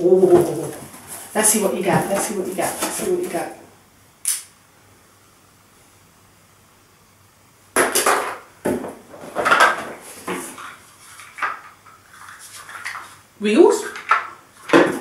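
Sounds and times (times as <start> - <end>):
packaging rustling: 0.2 - 3.5.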